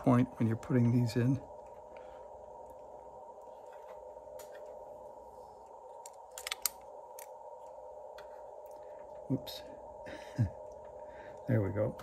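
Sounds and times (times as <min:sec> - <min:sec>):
faint steady hum: 0:00.0 - 0:12.0
cable connector clicks and scrapes: 0:06.0 - 0:07.3.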